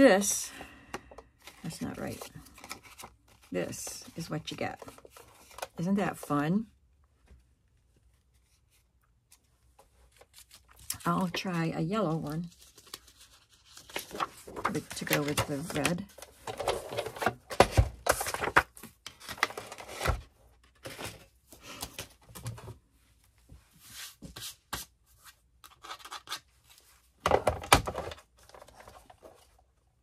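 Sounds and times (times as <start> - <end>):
paper rustling and scraping: 12.4 - 17.4.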